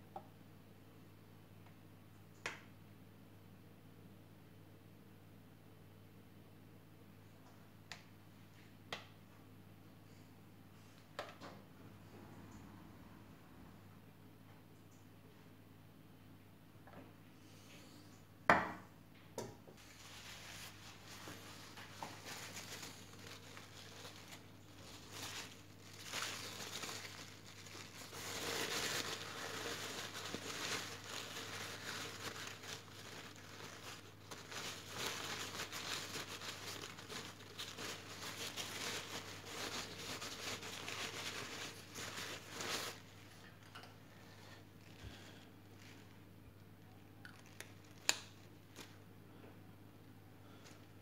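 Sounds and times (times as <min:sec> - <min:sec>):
paper towel crinkling and rubbing: 0:19.8 - 0:43.7.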